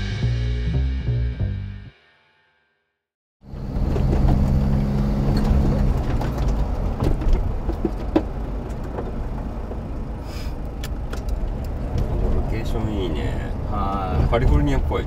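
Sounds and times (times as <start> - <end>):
low rumble: 0.0 - 1.9
vehicle engine running: 3.4 - 15.0.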